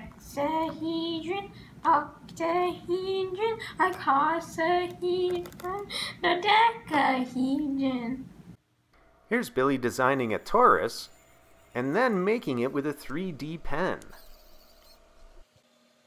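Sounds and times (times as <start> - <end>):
child singing: 0.0 - 8.2.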